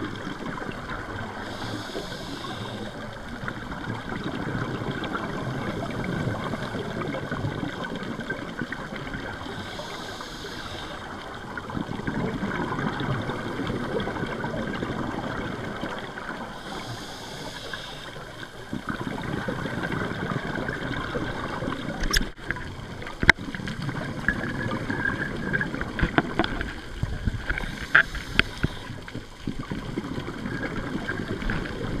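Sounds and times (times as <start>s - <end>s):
gurgling exhaled bubbles: 0.0s - 32.0s
regulator inhalation hiss: 1.4s - 3.1s, 9.4s - 11.2s, 16.5s - 18.4s, 27.6s - 29.0s.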